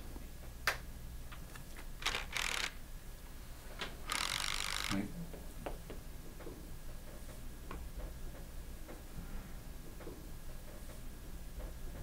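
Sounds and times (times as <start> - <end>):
power ratchet wrench: 2.0 - 2.8, 4.1 - 5.0.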